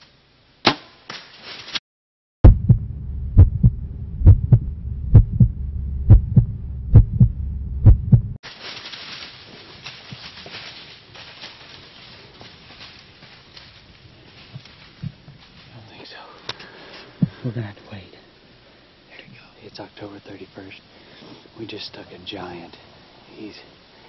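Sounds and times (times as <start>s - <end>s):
heartbeat thumps: 2.4s - 8.4s, 17.2s - 17.6s
steady low hum: 2.4s - 8.4s, 9.3s - 24.0s
faint woodland hiss: 8.4s - 24.0s.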